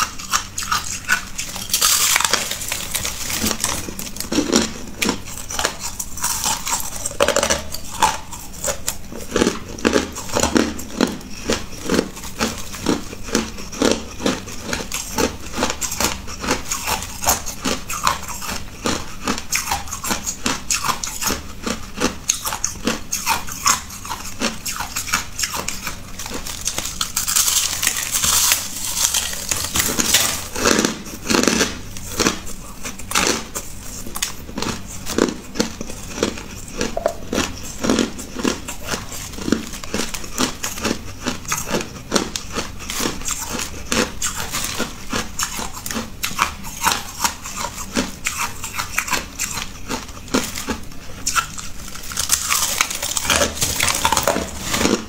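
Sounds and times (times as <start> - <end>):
ice crunching: 1.4 - 6.9, 26.2 - 31.6, 51.9 - 55.0.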